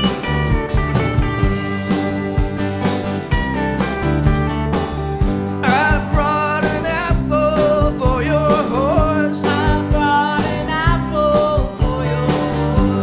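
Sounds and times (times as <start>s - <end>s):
live country-rock band: 0.0s - 13.0s
man singing: 5.6s - 13.0s.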